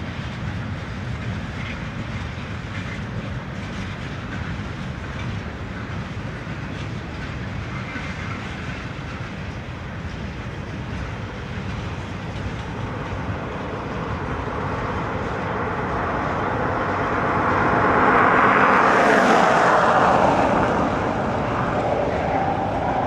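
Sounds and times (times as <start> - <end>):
freight train rumbling past: 0.0 - 23.0
vehicle passing by: 12.6 - 23.0.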